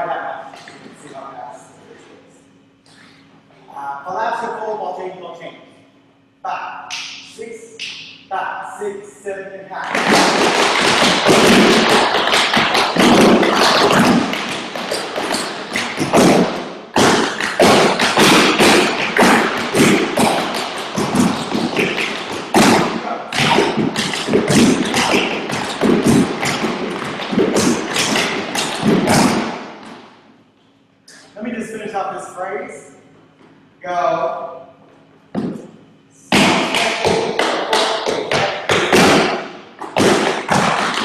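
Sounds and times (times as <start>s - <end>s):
heavy stomps on wood: 9.9s - 30.0s
tap dancing on wooden boards: 9.9s - 30.0s, 36.3s - 41.0s.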